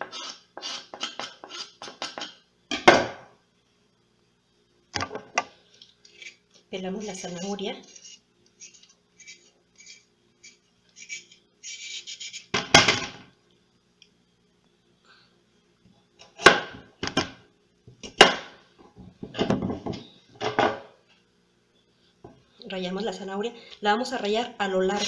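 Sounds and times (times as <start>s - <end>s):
peeler scraping a carrot: 0.0s - 2.2s, 7.0s - 12.5s.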